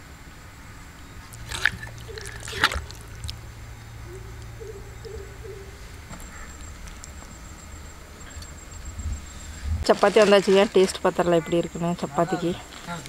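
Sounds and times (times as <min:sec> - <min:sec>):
gravy sloshing: 0:01.2 - 0:03.8.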